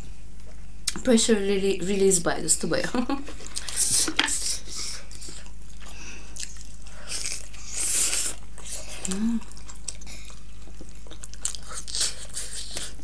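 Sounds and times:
chewing and mouth smacking: 0:04.8 - 0:13.0.

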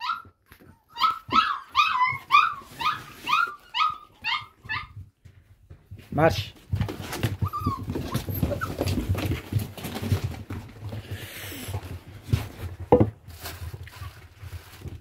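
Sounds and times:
plastic rustling: 0:06.8 - 0:15.0.

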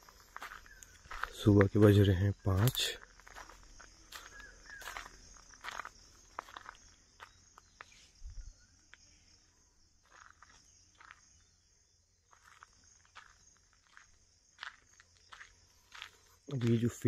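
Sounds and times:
footstep scuffs: 0:00.0 - 0:08.0, 0:12.3 - 0:17.0
crickets chirping: 0:00.0 - 0:17.0.

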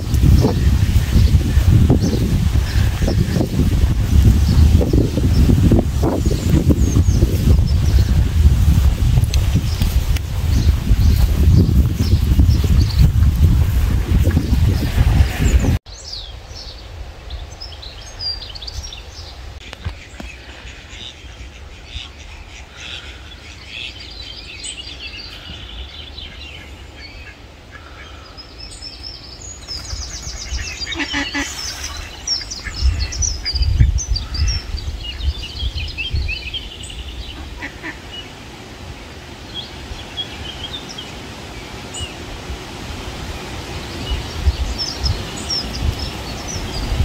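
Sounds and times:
wind buffeting microphone: 0:00.0 - 0:15.9, 0:29.3 - 0:38.2, 0:38.8 - 0:47.0
small birds chirping: 0:00.0 - 0:42.2, 0:43.4 - 0:47.0
ducks quacking: 0:30.1 - 0:34.7, 0:37.3 - 0:38.2.

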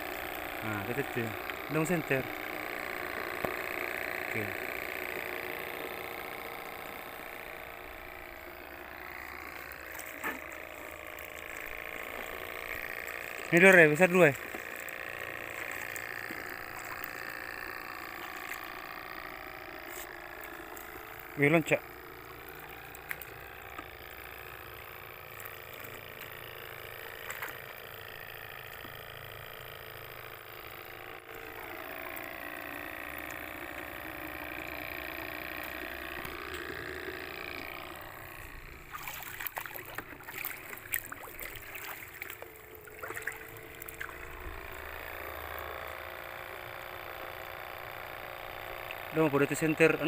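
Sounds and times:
steady hum: 0:00.0 - 0:50.0
seawater sloshing and splashing: 0:38.9 - 0:44.2.

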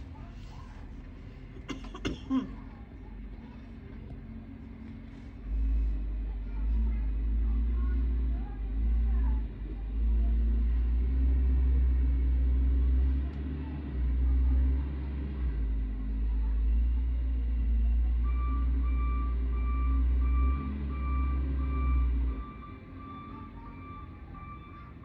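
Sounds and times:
diesel loader engine rumbling: 0:00.0 - 0:25.0
reversing alarm beeping: 0:18.2 - 0:25.0.

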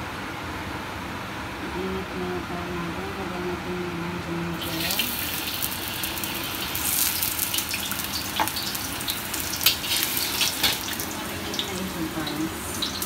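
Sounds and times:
aromatics sizzling in hot oil: 0:04.6 - 0:13.0
oil popping and crackling: 0:04.6 - 0:13.0.

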